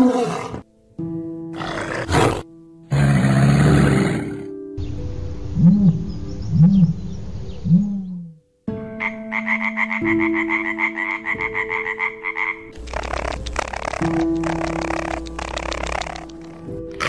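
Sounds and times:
background music: 0.0s - 17.0s
frog croaking trill: 9.0s - 16.7s
rough noisy animal sound: 12.7s - 17.0s.

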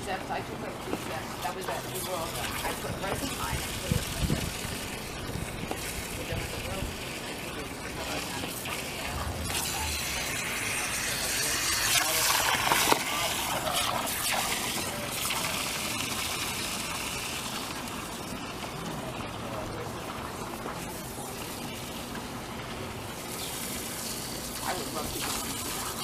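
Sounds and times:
hose water spraying into plastic pool: 0.0s - 26.0s.

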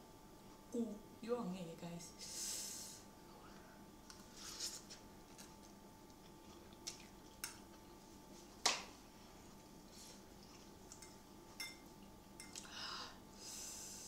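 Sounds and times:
metal fork clinking on ceramic bowl: 11.0s - 11.8s.

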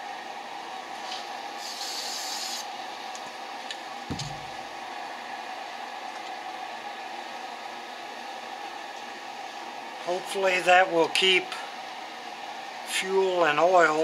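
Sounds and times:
aerosol spray can hissing: 1.6s - 2.7s
dull thud: 4.1s - 4.6s.

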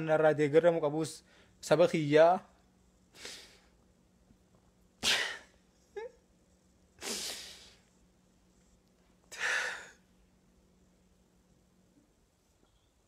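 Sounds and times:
man's breathy bursts: 9.3s - 10.0s.

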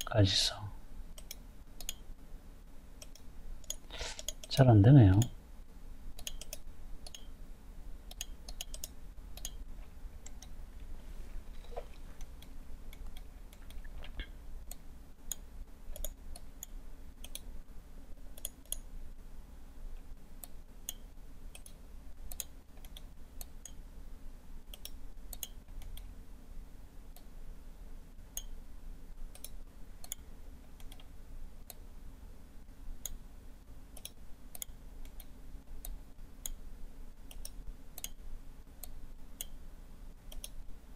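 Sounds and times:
faint low hum: 0.0s - 40.9s
computer mouse clicking: 1.2s - 2.1s, 3.0s - 5.3s, 6.2s - 7.4s, 8.1s - 9.6s, 10.2s - 10.6s, 11.6s - 17.5s, 18.2s - 18.9s, 20.4s - 23.8s, 24.7s - 26.2s, 29.3s - 31.9s, 33.9s - 36.6s, 37.2s - 38.2s, 38.8s - 39.6s, 40.3s - 40.6s.

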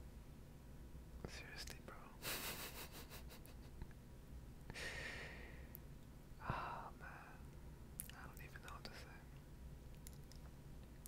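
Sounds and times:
person sighing: 4.7s - 5.6s.

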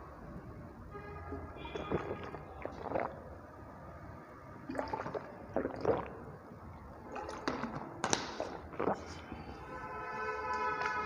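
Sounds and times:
person gulping water: 1.6s - 3.4s, 4.6s - 9.3s
plastic bottle clicking and crackling: 7.2s - 8.6s.

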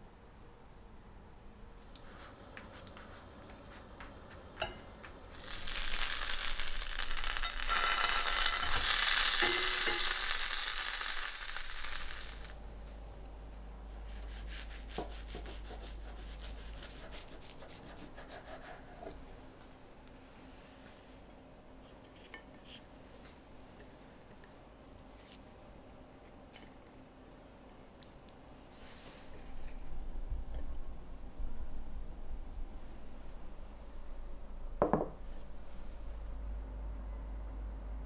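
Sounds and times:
quesadilla sizzling in a frying pan: 2.0s - 12.6s.

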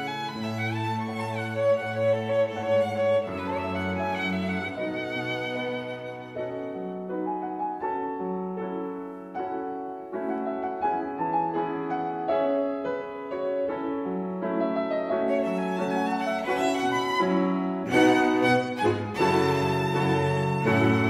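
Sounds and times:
string ensemble with cello: 0.0s - 7.1s, 15.3s - 21.0s
solo violin melody: 0.0s - 8.4s, 15.0s - 21.0s
piano: 0.0s - 21.0s.

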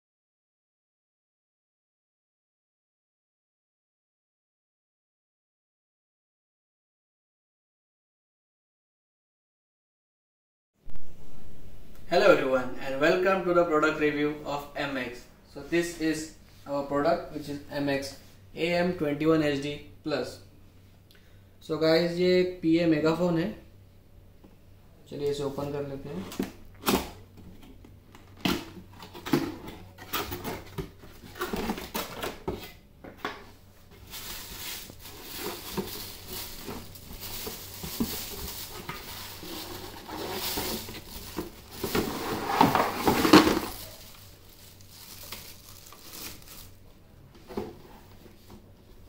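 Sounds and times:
plastic bag rustling and crinkling: 33.4s - 47.0s.

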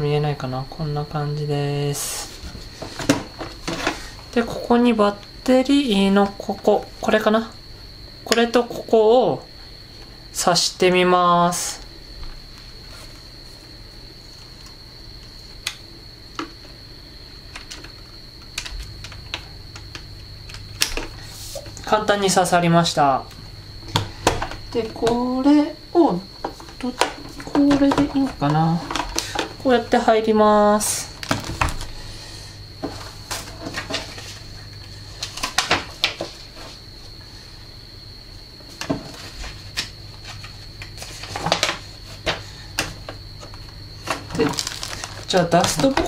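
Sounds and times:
paper rustling: 44.1s - 46.0s.

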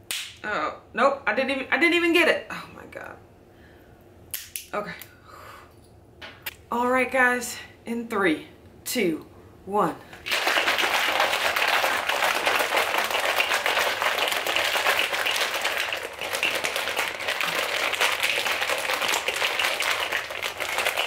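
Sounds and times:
shaker bottle rattling: 10.2s - 21.0s.

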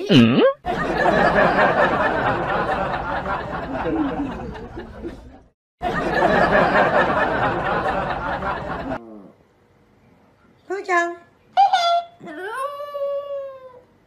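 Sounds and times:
people laughing: 0.7s - 9.0s.

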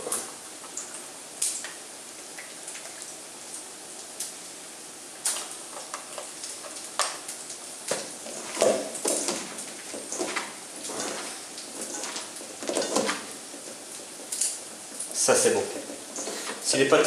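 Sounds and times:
wet squishing of mixing: 5.2s - 16.9s.

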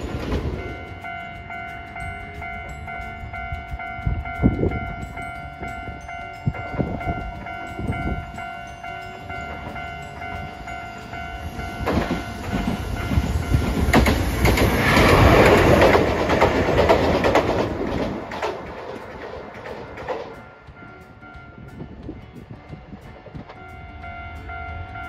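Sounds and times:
level-crossing bell dinging: 0.0s - 17.7s
tram running noise: 0.0s - 25.0s
wheels clicking over rail joints: 0.0s - 25.0s.

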